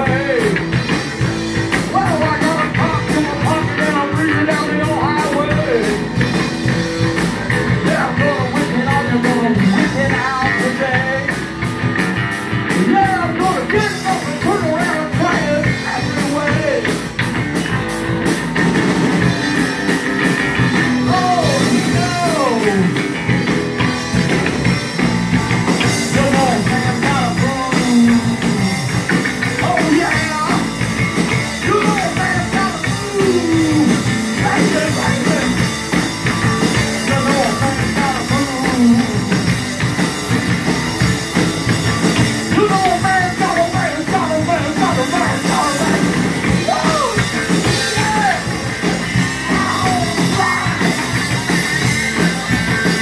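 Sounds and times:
man singing: 0:00.0 - 0:01.0, 0:01.8 - 0:06.2, 0:07.5 - 0:11.5, 0:12.7 - 0:17.1, 0:20.9 - 0:23.1, 0:25.8 - 0:28.7, 0:29.4 - 0:35.7, 0:36.5 - 0:39.6, 0:42.2 - 0:51.2
bass guitar: 0:00.0 - 0:53.0
drum kit with cymbals: 0:00.0 - 0:53.0
electric guitar: 0:00.0 - 0:53.0.

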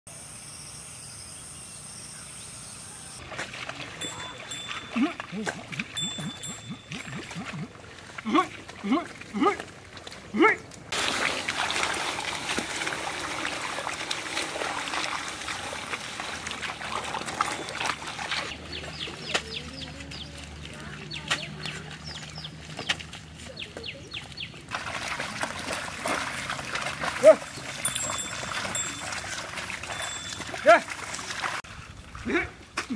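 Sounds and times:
muddy water splashing: 0:03.2 - 0:32.9
birds chirping: 0:03.9 - 0:09.5, 0:16.9 - 0:24.7, 0:27.2 - 0:30.8.

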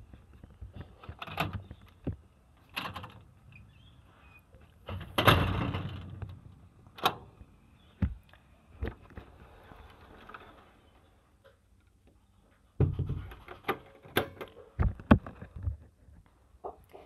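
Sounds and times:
door clatter: 0:04.9 - 0:06.3.

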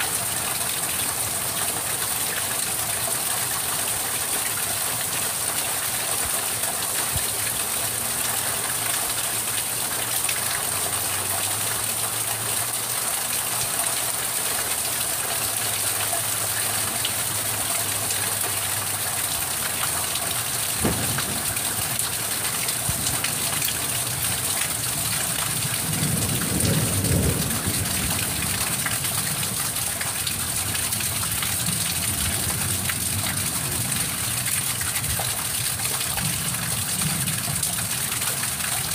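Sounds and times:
rain hissing: 0:00.0 - 0:38.9
low rumble of thunder: 0:20.7 - 0:30.0
sharp thunder crack: 0:20.8 - 0:23.6.

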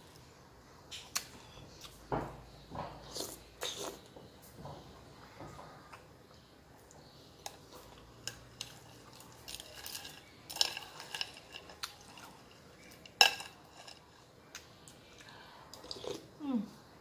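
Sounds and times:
spoon scraping crushed ice: 0:09.4 - 0:14.0.

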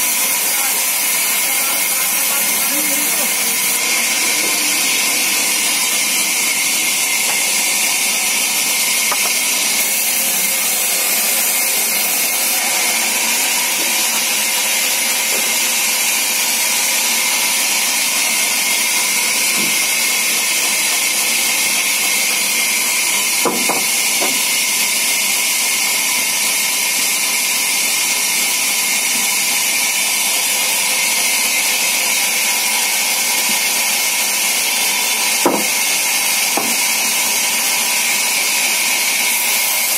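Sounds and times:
band saw cutting wood: 0:00.0 - 0:39.9
wood knocks: 0:09.1 - 0:09.4, 0:23.4 - 0:24.4, 0:35.4 - 0:35.7, 0:36.6 - 0:36.8.

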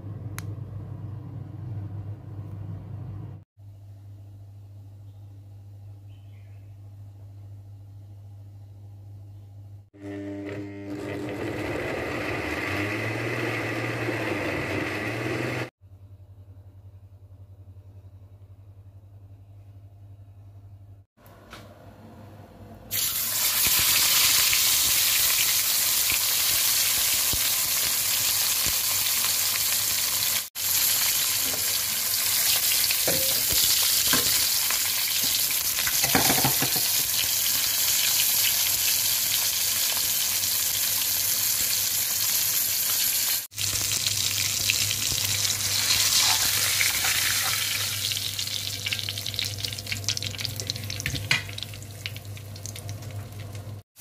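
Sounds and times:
fish sizzling in hot oil: 0:22.9 - 0:53.7.

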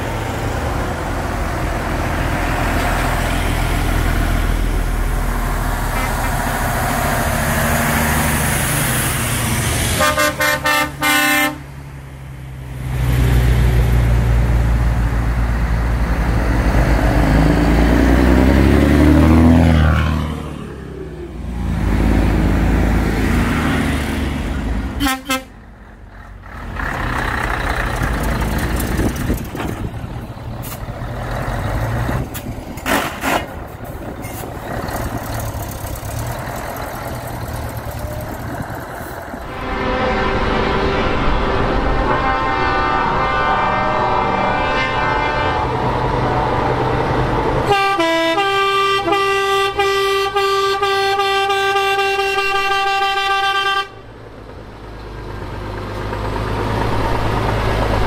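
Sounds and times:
heavy trucks driving past: 0:00.0 - 0:58.0
horn toots: 0:10.0 - 0:11.6, 0:25.0 - 0:25.6, 0:39.5 - 0:46.0, 0:47.6 - 0:54.1.

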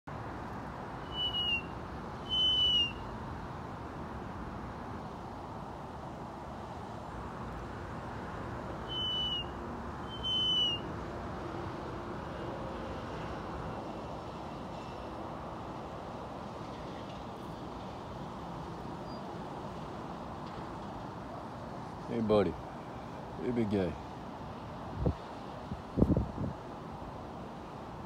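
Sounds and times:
steady background hiss: 0:00.1 - 0:28.0
hawk whistled calls: 0:01.0 - 0:03.1, 0:08.8 - 0:10.9.

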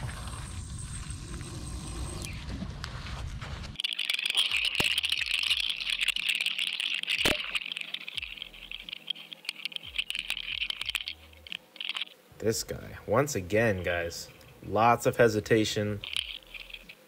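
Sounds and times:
clicks and rattles: 0:03.8 - 0:12.1, 0:16.0 - 0:17.0.

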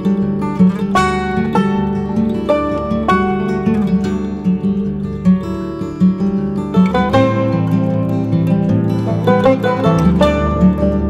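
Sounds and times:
plucked guitar notes: 0:00.0 - 0:11.0.

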